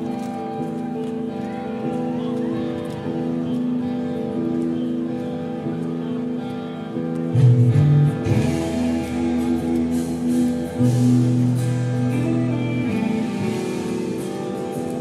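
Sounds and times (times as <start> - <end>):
live metal band playing: 7.3 - 15.0.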